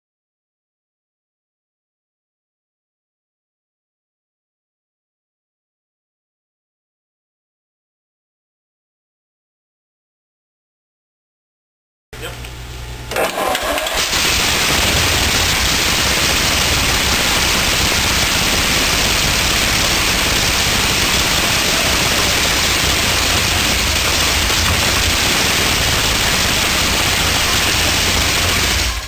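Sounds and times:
tank engine running steadily: 13.6 - 29.0.

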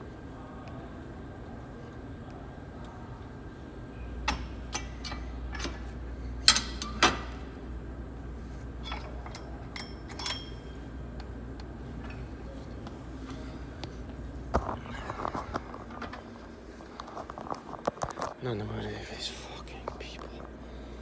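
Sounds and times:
steady low hum: 0.0 - 21.0
weight stack clinking and knocking: 8.8 - 10.8.

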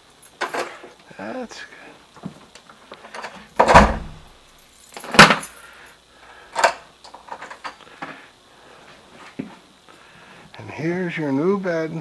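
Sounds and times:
heavy thud: 3.6 - 4.3.

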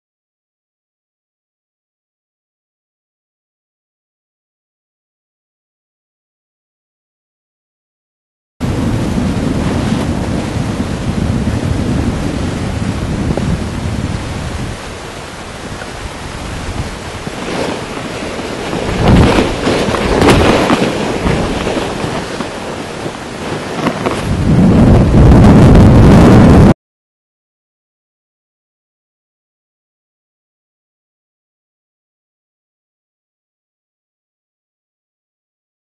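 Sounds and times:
wind buffeting microphone: 8.6 - 26.8.

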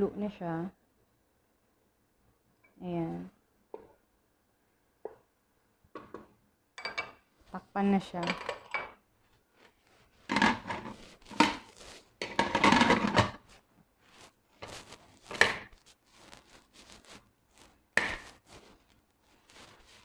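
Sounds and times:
metal lid scraping and clanking: 10.3 - 11.6, 12.2 - 13.4.

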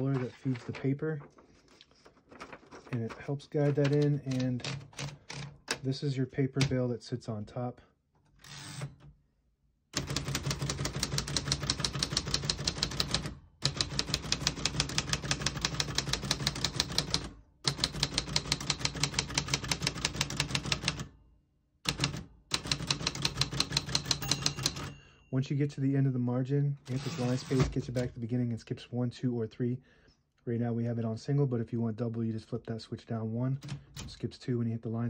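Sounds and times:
manual typewriter typing: 2.3 - 5.8, 10.0 - 21.1, 21.9 - 25.0, 26.9 - 28.2.

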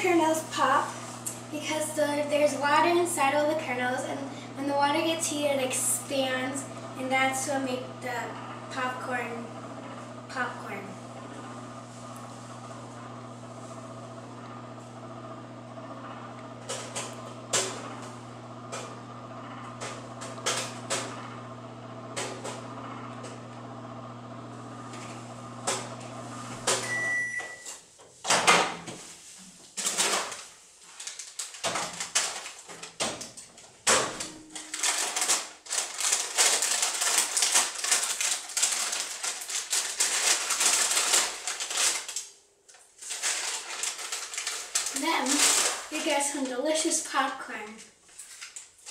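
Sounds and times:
microwave oven humming: 0.0 - 27.8, 32.9 - 41.6
popcorn popping: 16.0 - 23.7
microwave beep: 26.3 - 27.8
paper bag rustling: 29.1 - 33.7, 34.4 - 46.7.

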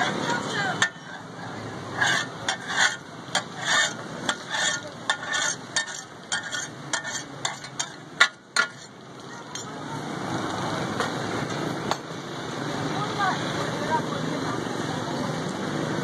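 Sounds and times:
metal spatulas clattering on griddle: 0.0 - 1.3, 2.0 - 9.8
frying sizzle: 0.0 - 16.0.

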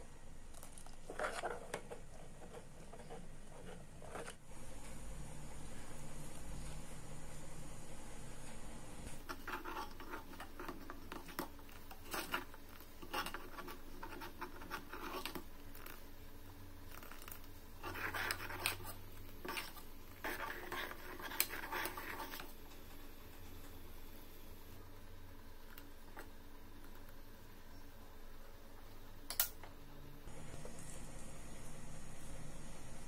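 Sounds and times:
ladle stirring thick mixture: 9.2 - 23.1.

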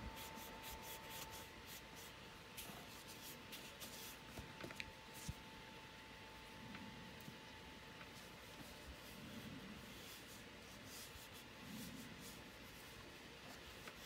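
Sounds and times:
towelette rubbing a screen: 0.0 - 4.4, 8.2 - 14.0.

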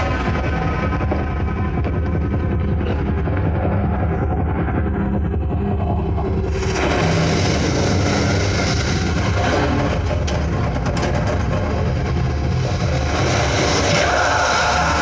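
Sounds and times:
deep rumble: 0.0 - 15.0
rushing noisy sound effects: 0.0 - 15.0.

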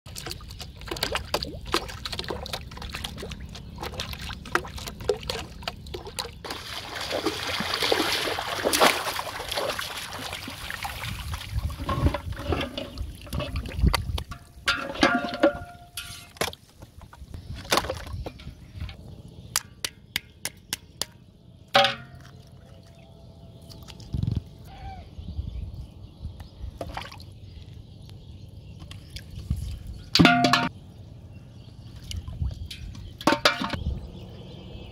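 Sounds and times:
shallow water splashing: 0.1 - 15.4.

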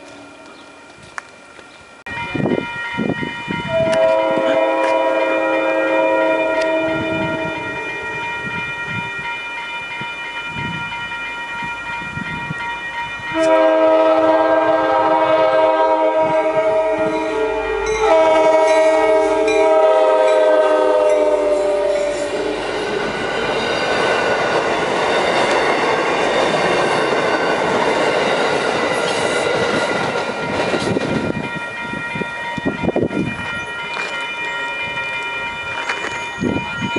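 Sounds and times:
crossing bell ringing: 0.0 - 36.9
train air horn chord: 3.7 - 8.2, 13.3 - 22.6
train wheels clacking on rail joints: 21.4 - 31.7.

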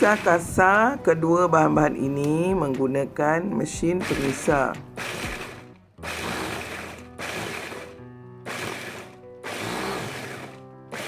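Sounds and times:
electric blender grinding in pulses: 0.0 - 0.5, 4.0 - 11.0.

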